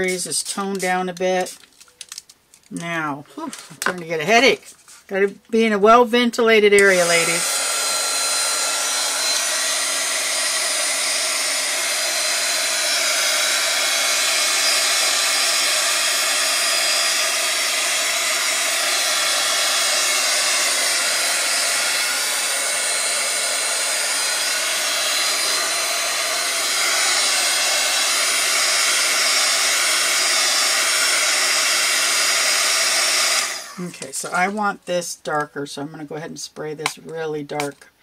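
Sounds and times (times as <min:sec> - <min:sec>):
electric air blower whooshing: 0:06.8 - 0:34.5.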